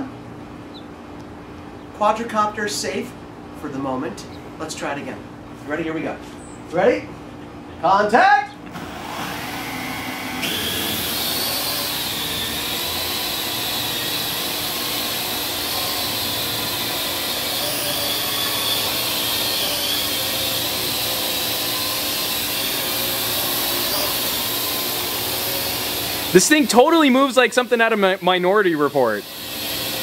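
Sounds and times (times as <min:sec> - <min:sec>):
drone propellers whirring: 0:08.7 - 0:30.0.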